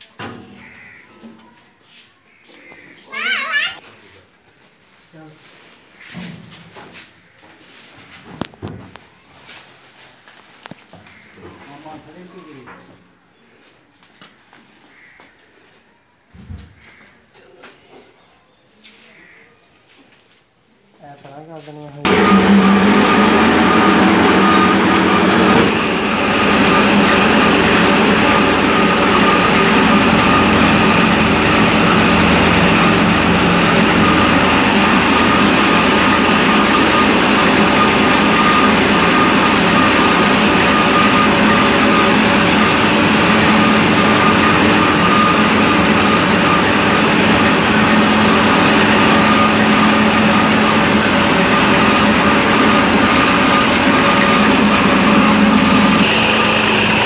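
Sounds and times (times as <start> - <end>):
cotton gin machine drone: 22.0 - 57.0.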